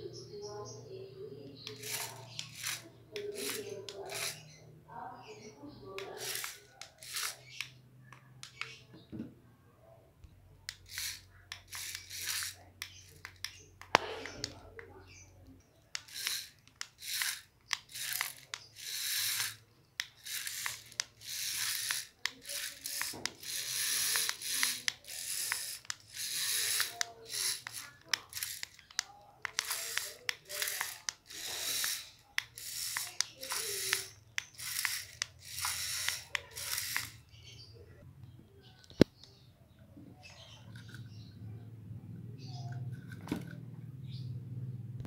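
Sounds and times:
servo whirring: 0:01.6 - 0:08.8, 0:10.7 - 0:15.2, 0:15.8 - 0:37.6
clicks: 0:05.9 - 0:09.3, 0:10.2 - 0:37.3, 0:38.2 - 0:39.4.

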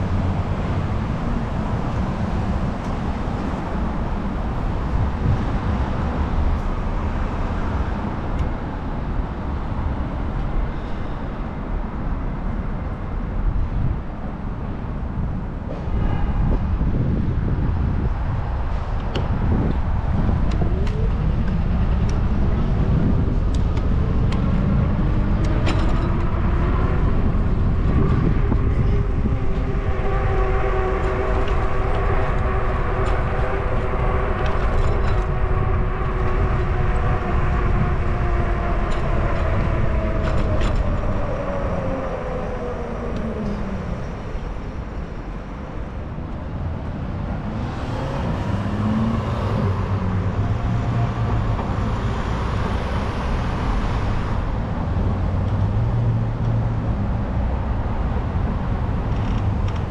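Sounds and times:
bicycle humming whine: 0:00.0 - 0:59.9
road rumble: 0:00.0 - 0:59.9
wind buffeting microphone: 0:00.0 - 0:59.9.

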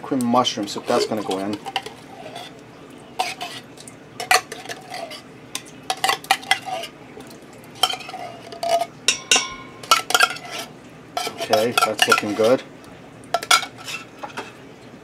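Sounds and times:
spoon scraping metal can: 0:00.6 - 0:02.6, 0:03.2 - 0:07.0, 0:07.8 - 0:08.9, 0:09.8 - 0:12.6, 0:13.4 - 0:14.6.

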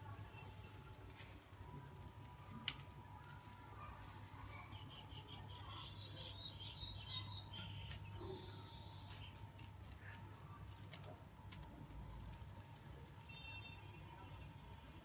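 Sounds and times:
leafy sprigs rustling: 0:00.0 - 0:15.0.

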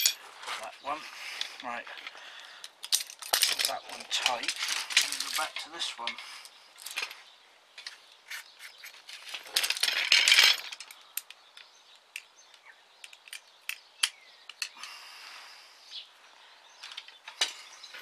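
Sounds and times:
tent poles rattling: 0:02.8 - 0:07.2, 0:07.8 - 0:12.1
tent pole sections clicking: 0:07.8 - 0:15.0.

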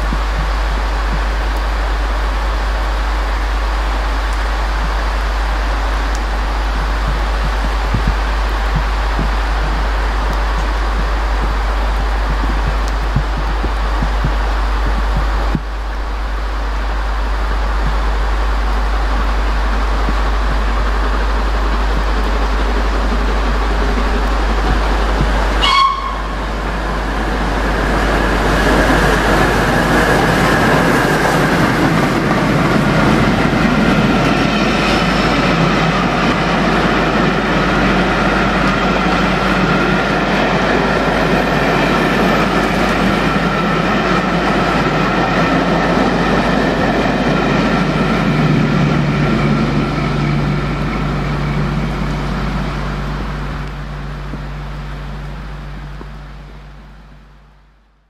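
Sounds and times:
train wheels roaring on rail: 0:00.0 - 0:58.0
brief high tone: 0:25.6 - 0:26.4.

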